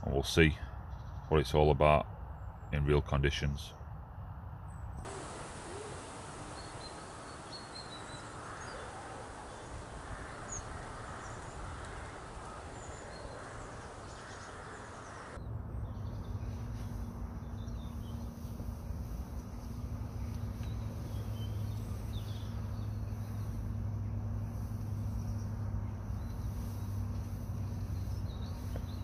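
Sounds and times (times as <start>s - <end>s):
small birds chirping: 0.0s - 1.7s, 4.7s - 29.0s
woodland hiss: 5.0s - 15.4s, 16.2s - 29.0s.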